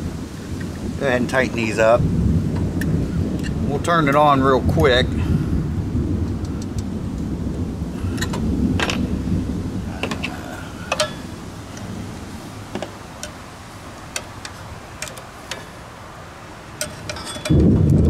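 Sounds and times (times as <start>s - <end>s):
distant thunder rumble: 0.0s - 18.0s
metal parts clicking and tapping: 8.2s - 9.0s, 10.9s - 11.9s, 12.7s - 13.4s, 14.1s - 15.8s, 16.8s - 18.0s.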